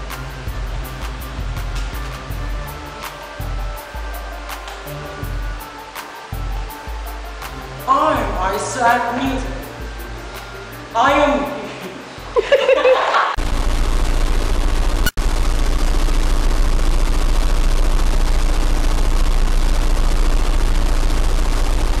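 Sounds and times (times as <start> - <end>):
crackling static hiss: 0.0 - 12.2, 13.4 - 22.0
burst of laughter: 12.4 - 13.4.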